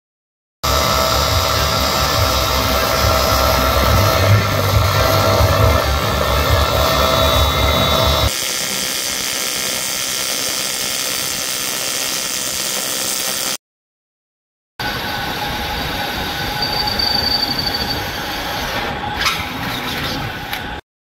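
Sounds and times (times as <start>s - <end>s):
welding arc buzzing and hissing: 0.6s - 13.6s.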